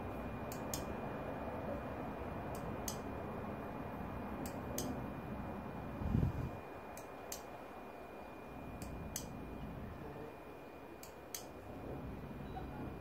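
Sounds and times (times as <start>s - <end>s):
faint high whine: 0.0s - 13.0s
control switch clicks: 2.5s - 3.0s.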